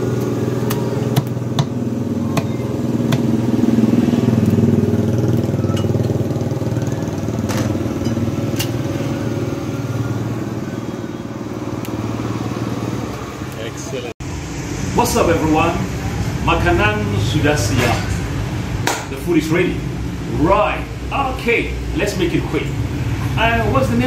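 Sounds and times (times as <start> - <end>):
low motor hum: 0.0 - 13.5.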